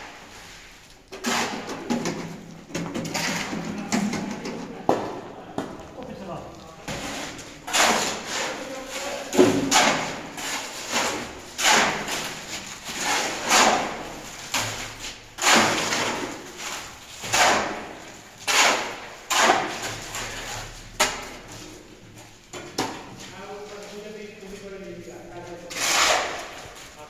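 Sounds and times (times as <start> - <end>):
shovels scraping concrete: 0.2 - 4.6, 6.9 - 21.9, 25.4 - 27.0.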